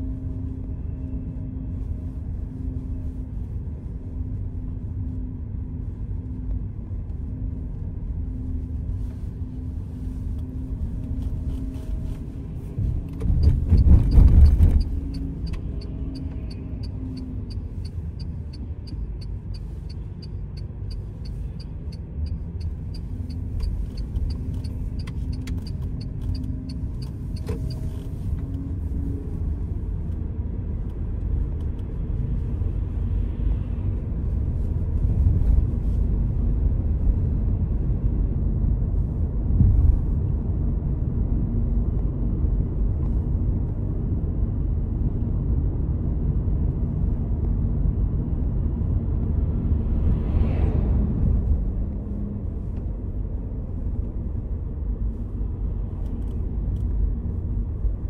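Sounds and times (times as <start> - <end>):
car engine and tyre rumble: 0.0 - 58.0.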